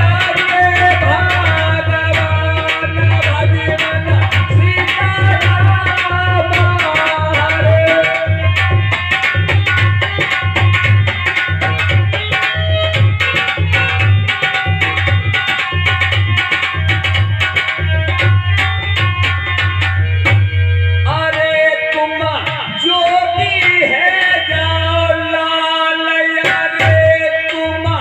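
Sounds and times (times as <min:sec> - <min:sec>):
hand drums fast beat: 0:00.0 - 0:20.4.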